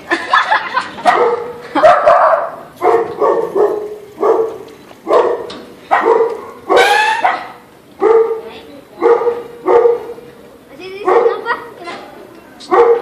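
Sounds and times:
dog barking: 0:01.0 - 0:10.2, 0:11.0 - 0:11.5, 0:12.7 - 0:13.0.

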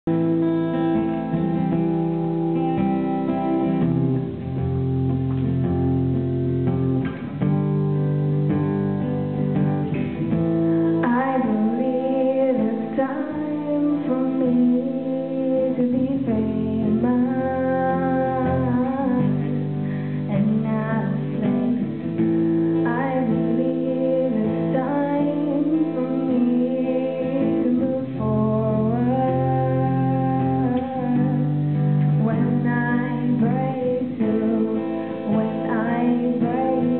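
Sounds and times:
acoustic guitar strumming: 0:00.0 - 0:36.9
person singing: 0:10.7 - 0:36.9.

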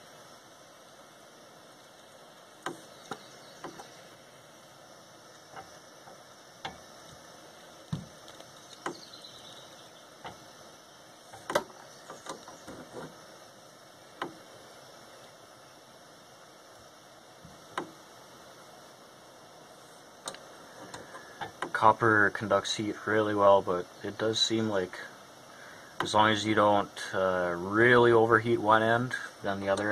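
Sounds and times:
gas torch hissing: 0:00.0 - 0:29.9.

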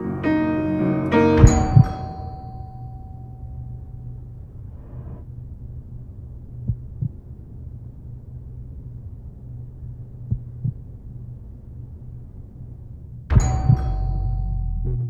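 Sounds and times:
low steady drone: 0:00.0 - 0:15.0
heartbeat double thumps: 0:01.4 - 0:02.0, 0:06.6 - 0:07.2, 0:10.3 - 0:10.8, 0:13.3 - 0:15.0.

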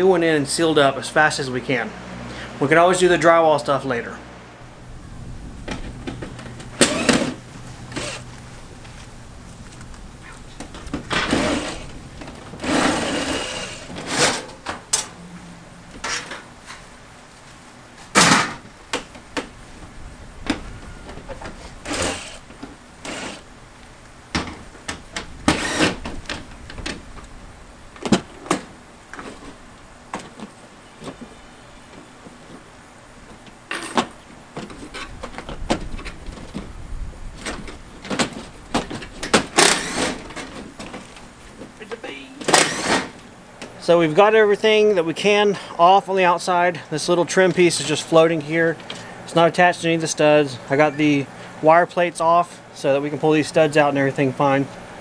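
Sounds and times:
scraping rattles: 0:05.3 - 0:15.2
metal siding knocks and clanks: 0:05.5 - 0:09.2, 0:09.8 - 0:15.2, 0:15.9 - 0:16.9, 0:18.0 - 0:41.8, 0:42.4 - 0:43.7.

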